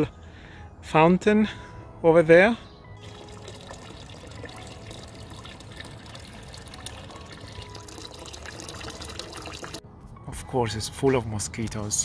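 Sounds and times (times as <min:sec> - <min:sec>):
water splashing into metal trough: 0:03.0 - 0:09.8.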